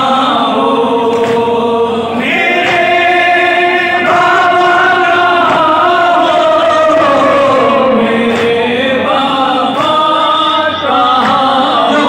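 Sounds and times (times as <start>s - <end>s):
chorus of men chanting: 0.0s - 12.0s
lead voice reciting lament: 1.4s - 12.0s.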